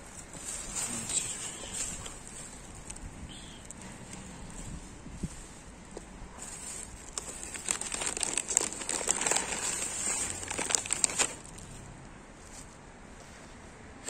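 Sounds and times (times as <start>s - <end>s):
plastic bag crinkling: 6.4s - 11.7s.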